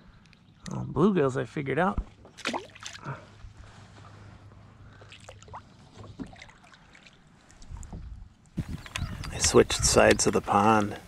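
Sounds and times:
water drips and small splashes: 2.2s - 3.2s, 4.9s - 9.0s.

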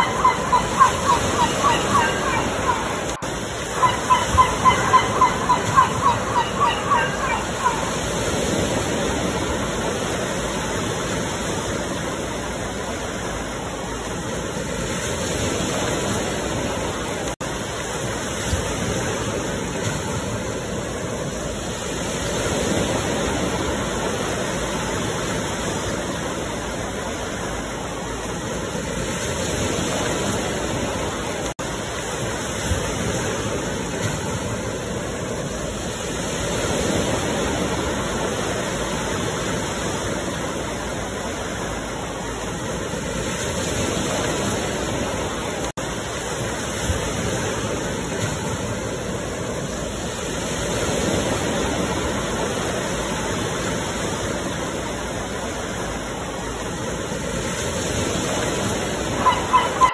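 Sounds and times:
ocean surf washing in: 0.0s - 59.9s.

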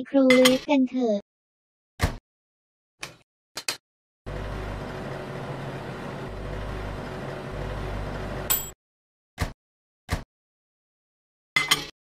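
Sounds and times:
oven electric hum: 4.3s - 8.5s.

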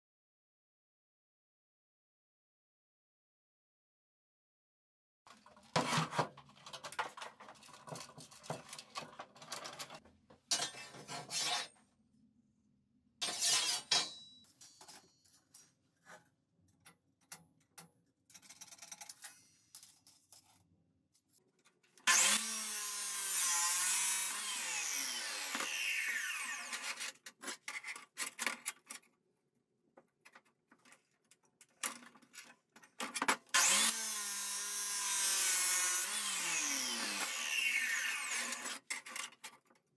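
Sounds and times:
chop saw cutting steel: 13.2s - 14.3s, 22.0s - 27.2s, 33.5s - 38.9s.

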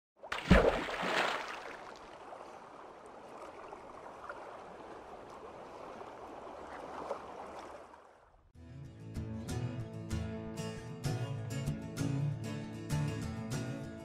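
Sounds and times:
rushing bubbling water: 0.2s - 8.2s.

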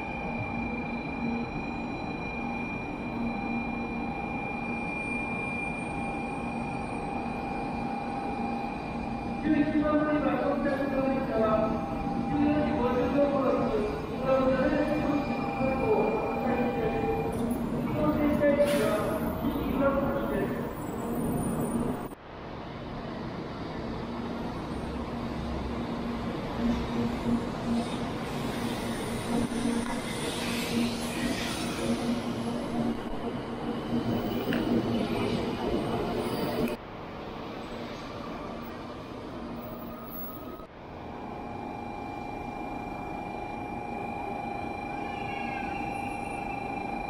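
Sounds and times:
faint constant high tone: 0.0s - 18.6s, 39.8s - 47.0s
train station platform noise: 0.0s - 47.0s.

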